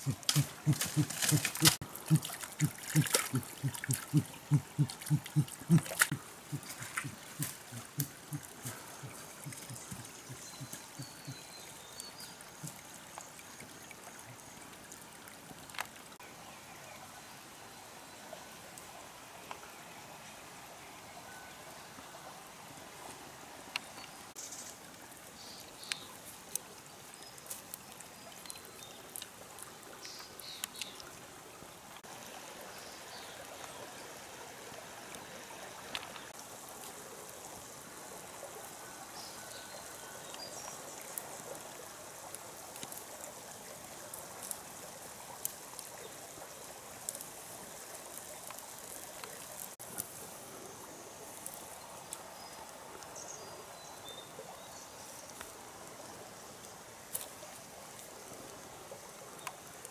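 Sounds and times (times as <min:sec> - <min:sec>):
forest stream running: 0:00.0 - 0:59.9
faint high chirps: 0:03.0 - 0:12.8.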